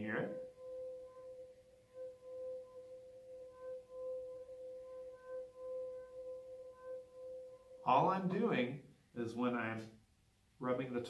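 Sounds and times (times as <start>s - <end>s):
singing wine glass ringing tone: 0.0s - 8.7s.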